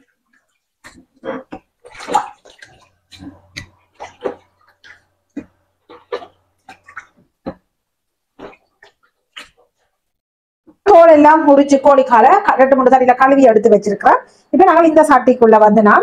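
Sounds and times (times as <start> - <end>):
water splashing in a bowl: 0.0 - 7.7.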